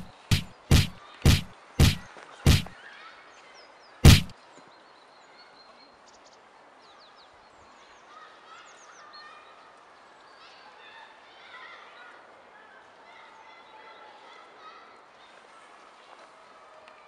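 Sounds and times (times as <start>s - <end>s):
heavy punch impacts: 0.0s - 2.7s, 4.0s - 4.3s.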